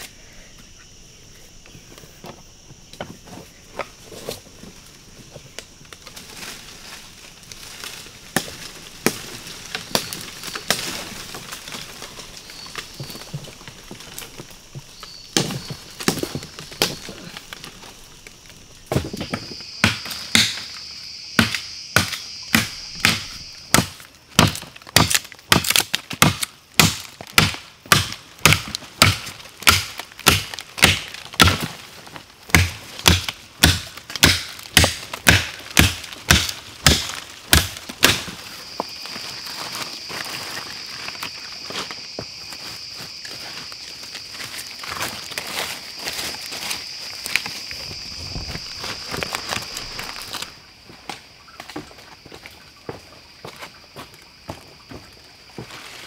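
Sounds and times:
insects chirring: 0.0s - 56.0s
tool striking chopping: 19.8s - 20.6s, 21.4s - 31.7s, 32.5s - 38.3s.

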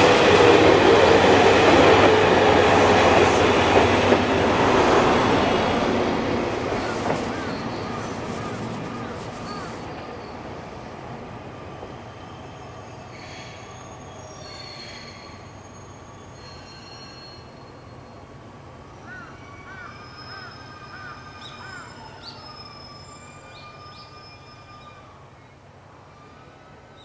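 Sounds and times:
train wheels squealing: 6.5s - 10.9s, 11.7s - 27.0s.

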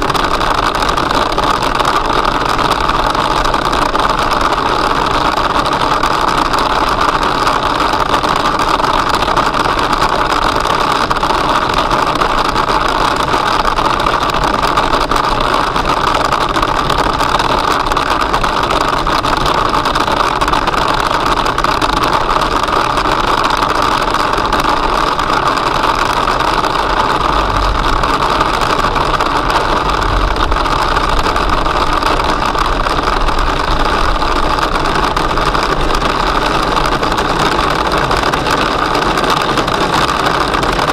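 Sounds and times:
car road noise: 0.0s - 40.9s
hail and rain drumming on car roof: 0.0s - 40.9s.

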